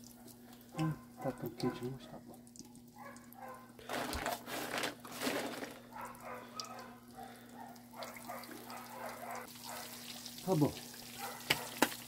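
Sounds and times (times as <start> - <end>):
fish frying in oil: 9.4 - 12.0.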